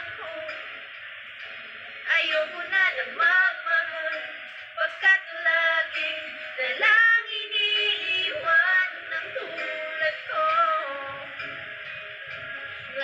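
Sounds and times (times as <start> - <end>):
woman singing unaccompanied: 0.0 - 0.7, 2.1 - 11.4.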